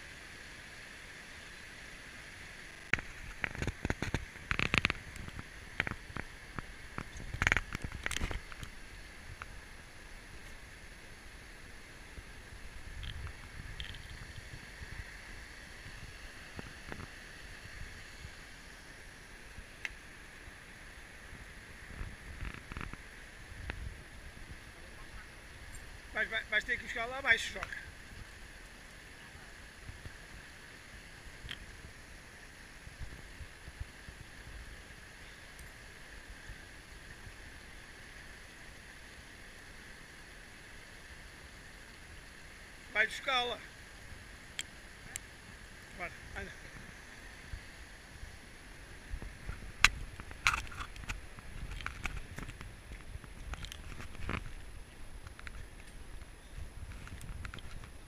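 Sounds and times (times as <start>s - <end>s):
river flowing over rocks: 0.0s - 58.0s
stream running over stones: 0.0s - 58.0s
wind rumble on microphone: 2.9s - 11.0s, 12.0s - 19.8s, 20.6s - 26.2s, 29.4s - 37.8s, 45.0s - 58.0s.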